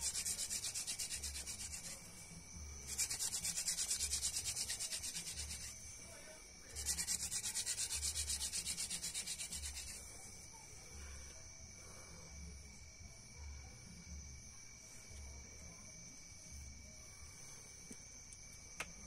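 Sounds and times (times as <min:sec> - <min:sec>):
wooden spindle rubbing scrape: 0:00.0 - 0:05.9, 0:06.6 - 0:10.4.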